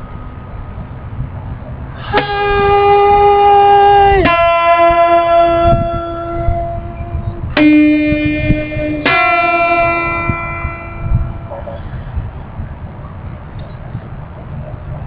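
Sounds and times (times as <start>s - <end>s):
acoustic guitar notes: 2.0s - 12.1s.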